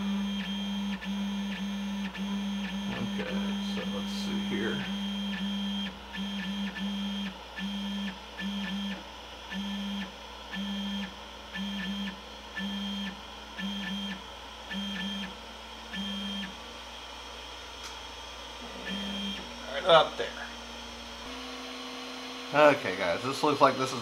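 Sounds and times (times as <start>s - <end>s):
stepper motors humming and whining: 0.0s - 24.0s.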